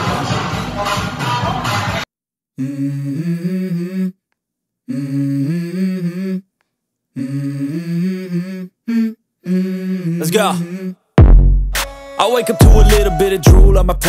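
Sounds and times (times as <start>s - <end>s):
hummed vocal dance music: 2.6s - 4.2s, 4.9s - 6.5s, 7.1s - 11.5s, 12.2s - 14.0s.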